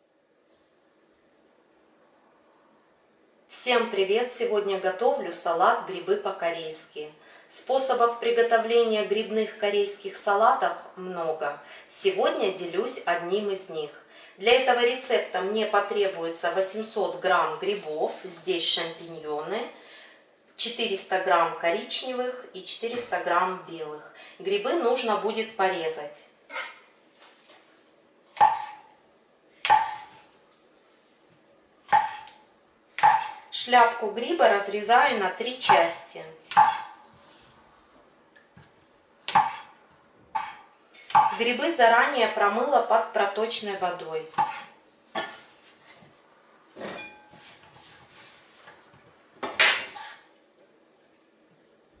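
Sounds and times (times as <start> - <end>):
knife chopping on cutting board: 28.4 - 28.8, 29.6 - 30.1, 31.9 - 32.4, 39.3 - 39.7, 40.4 - 41.4, 44.4 - 44.7.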